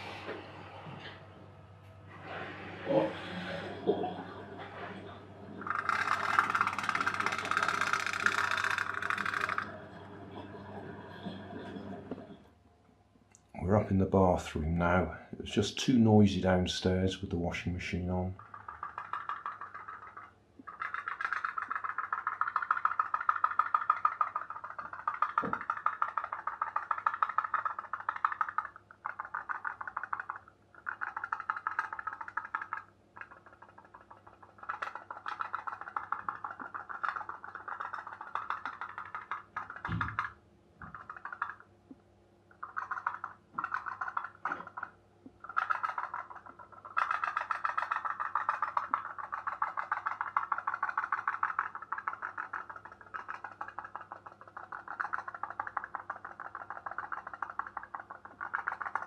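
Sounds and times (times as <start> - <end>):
toy steam boat popping: 5.6 - 9.8, 18.4 - 41.7, 42.6 - 59.0.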